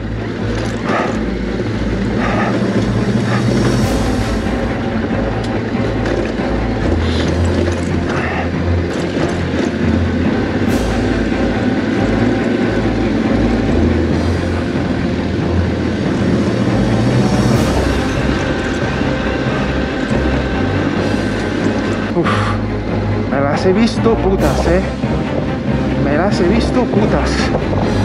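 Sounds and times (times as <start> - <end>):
motorcycle rattling over rocks: 5.3 - 12.7.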